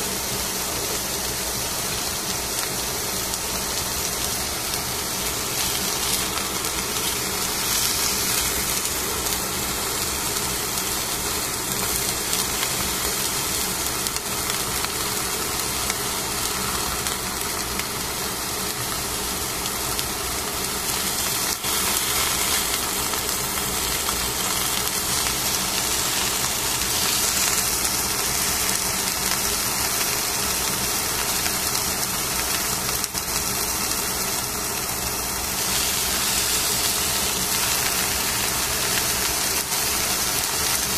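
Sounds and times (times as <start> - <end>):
fish sizzling in a pan: 0.0 - 40.9
mechanical hum: 0.0 - 40.9.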